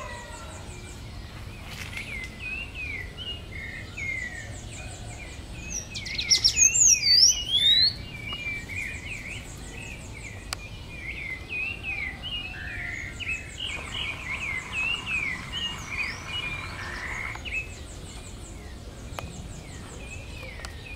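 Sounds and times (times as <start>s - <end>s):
birds chirping: 0.0s - 20.9s
high pulsing insect trill: 13.3s - 17.7s.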